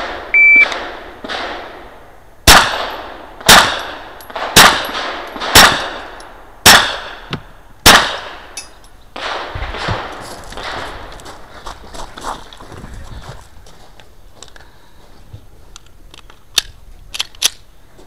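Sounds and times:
pistol shots echoing off concrete: 0:02.5 - 0:07.2.

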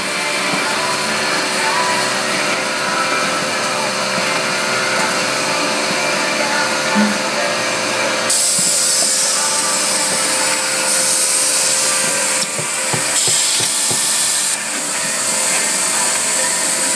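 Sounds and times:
machinery humming: 0:00.0 - 0:16.9
compressed air hiss: 0:08.3 - 0:16.9.

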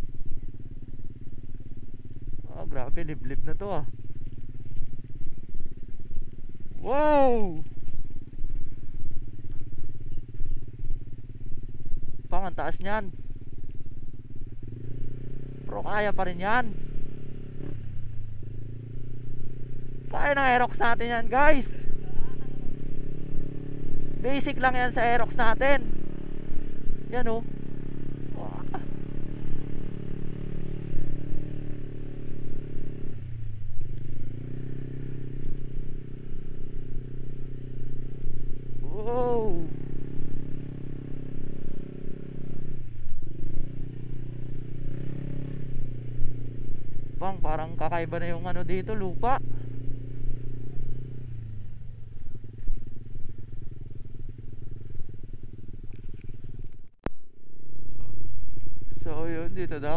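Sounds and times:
scooter engine under throttle: 0:00.0 - 0:56.9.

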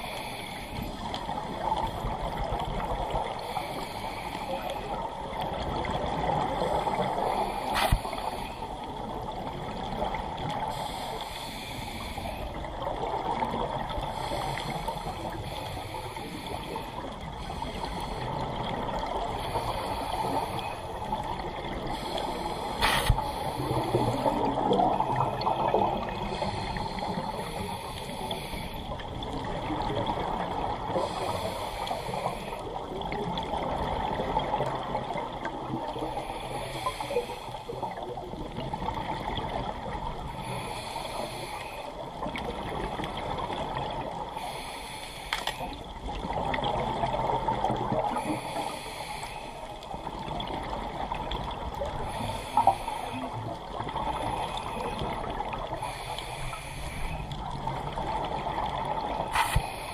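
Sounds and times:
scuba regulator breathing: 0:00.0 - 0:01.0, 0:03.1 - 0:05.1, 0:06.6 - 0:08.9, 0:10.6 - 0:12.7, 0:14.0 - 0:29.1, 0:30.9 - 0:32.8, 0:35.9 - 0:38.0, 0:40.2 - 0:42.1, 0:43.8 - 0:46.4, 0:48.0 - 0:50.0, 0:51.9 - 0:57.8, 0:59.2 - 0:59.9
exhaled bubbles underwater: 0:04.5 - 0:11.2, 0:12.0 - 0:44.4, 0:45.6 - 0:49.1, 0:49.8 - 0:59.9.

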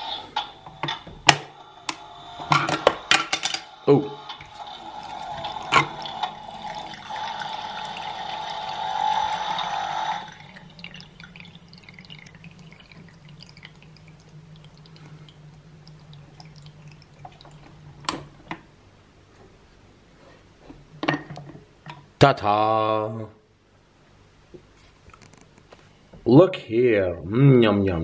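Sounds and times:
low steady hum: 0:00.0 - 0:28.0
water pouring into plastic cup: 0:04.3 - 0:18.0
faint drips: 0:10.2 - 0:18.1.

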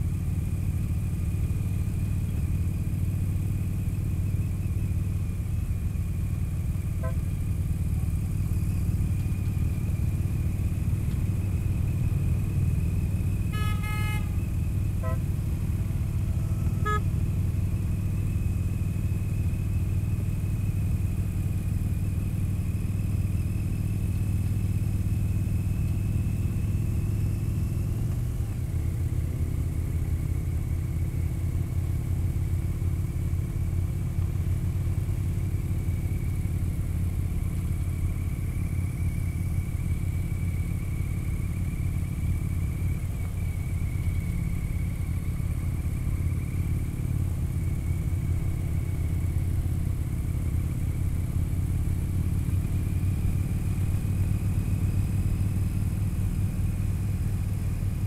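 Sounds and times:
motorcycle engine cruising: 0:00.0 - 0:58.0
short horn toot: 0:07.0 - 0:07.3, 0:13.4 - 0:14.4, 0:15.0 - 0:15.3, 0:16.4 - 0:17.2
brief beeps: 0:16.6 - 0:17.1.

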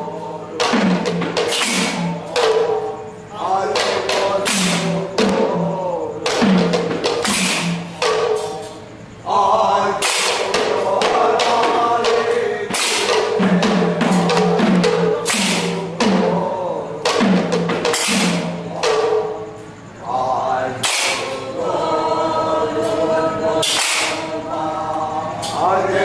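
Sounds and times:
group of voices singing: 0:00.0 - 0:26.0
hand drums playing: 0:10.0 - 0:19.4.

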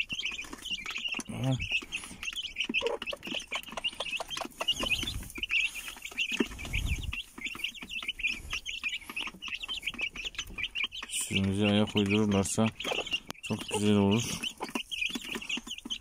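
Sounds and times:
chicks peeping: 0:00.0 - 0:16.0.

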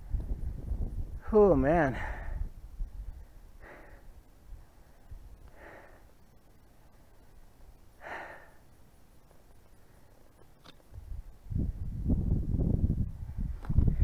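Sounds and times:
man breathing hard: 0:01.9 - 0:06.2, 0:08.0 - 0:08.7.

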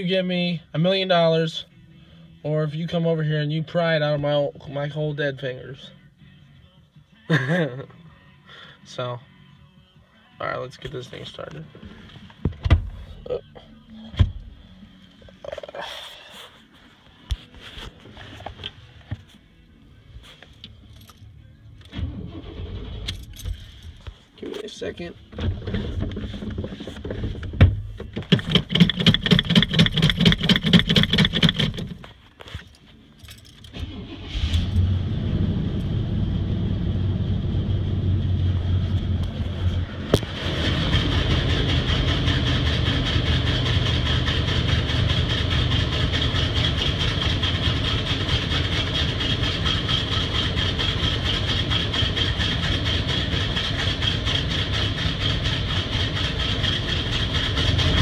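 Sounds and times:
starter motor cranking: 0:28.3 - 0:32.0
truck engine running: 0:33.8 - 0:58.0.

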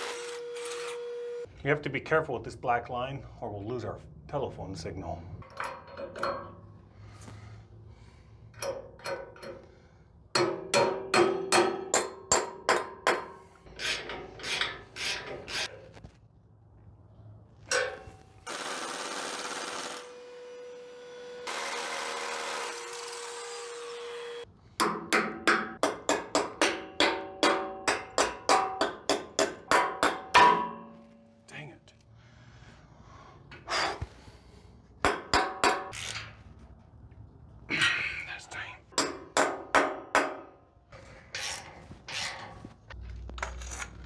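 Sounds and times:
power drill whining: 0:00.0 - 0:01.5, 0:18.5 - 0:23.8.

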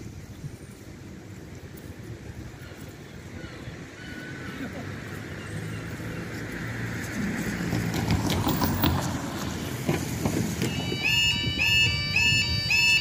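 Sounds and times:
car driving over crossing: 0:05.3 - 0:13.0
crossing warning alarm tone: 0:10.5 - 0:13.0.

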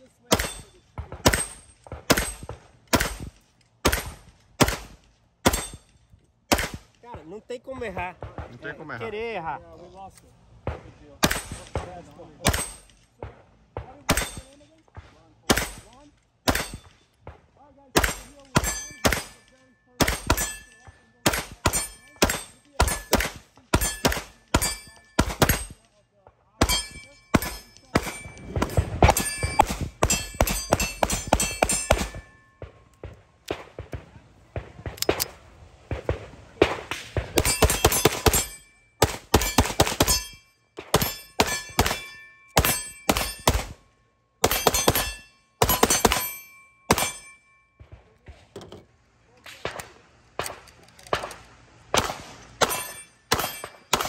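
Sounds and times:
steel targets ringing: 0:00.3 - 0:04.2, 0:05.4 - 0:06.1, 0:12.4 - 0:13.0, 0:14.0 - 0:14.7, 0:15.5 - 0:17.1, 0:17.9 - 0:26.0, 0:26.6 - 0:33.0, 0:37.4 - 0:47.9, 0:52.5 - 0:54.0
rapid pistol fire: 0:00.3 - 0:05.8, 0:06.5 - 0:06.9, 0:21.2 - 0:25.8, 0:26.6 - 0:40.2, 0:49.6 - 0:54.0.

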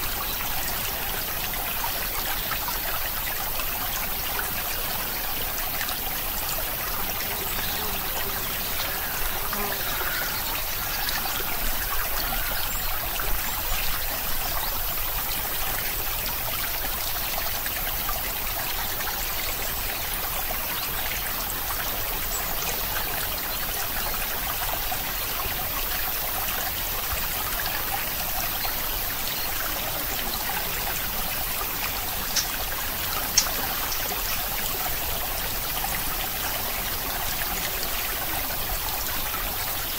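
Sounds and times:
stream trickling: 0:00.0 - 0:39.9
faint clicks: 0:32.3 - 0:32.6, 0:33.3 - 0:34.4.

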